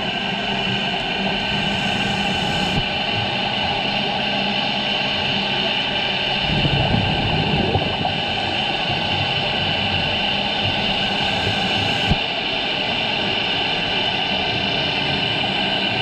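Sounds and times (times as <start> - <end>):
underwater drone and hiss: 0.0 - 16.0.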